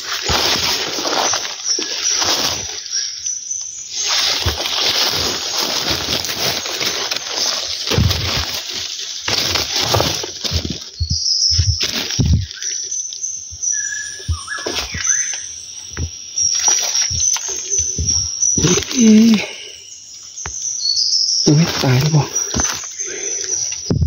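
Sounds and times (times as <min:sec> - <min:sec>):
dry leaves rustling and crashing: 0:00.0 - 0:03.1, 0:03.8 - 0:19.6, 0:21.5 - 0:23.0
footsteps in undergrowth: 0:00.0 - 0:03.1, 0:03.8 - 0:19.7, 0:20.3 - 0:23.9
heavy thumps: 0:09.3 - 0:12.5.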